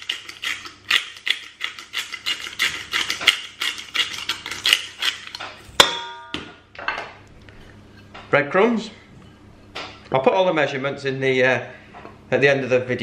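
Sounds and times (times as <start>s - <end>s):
pepper grinder crunching: 0.0s - 5.8s.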